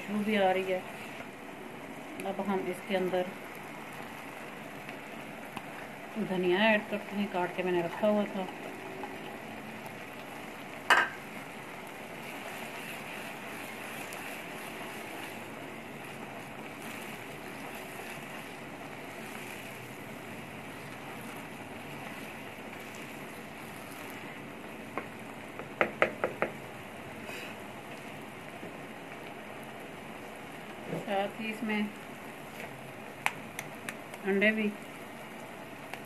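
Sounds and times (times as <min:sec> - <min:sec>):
sauce bubbling and sizzling in pan: 0:00.0 - 0:36.0
spatula knocking against pan: 0:10.9 - 0:11.2, 0:25.0 - 0:26.6.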